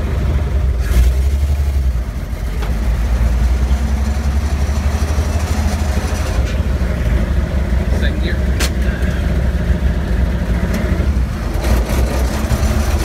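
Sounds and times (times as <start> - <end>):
car engine running: 0.0 - 13.0.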